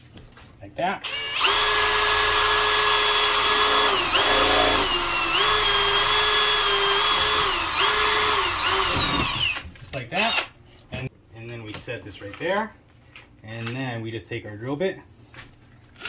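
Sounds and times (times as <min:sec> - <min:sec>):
cordless drill whining into metal: 0:01.0 - 0:09.6.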